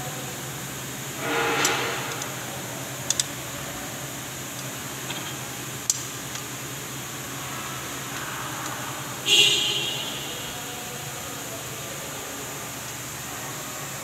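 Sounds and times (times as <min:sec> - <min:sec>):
low hum: 0:01.1 - 0:04.2
rushing scrape: 0:01.2 - 0:02.9.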